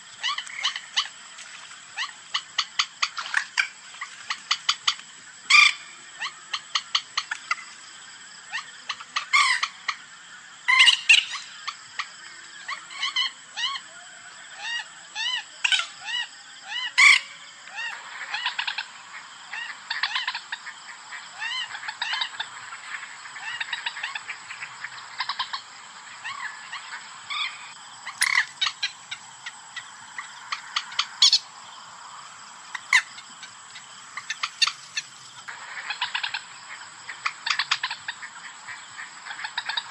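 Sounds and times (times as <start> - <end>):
moorhen clucking calls: 14.6 - 39.9
harsh bird calls: 23.4 - 36.4.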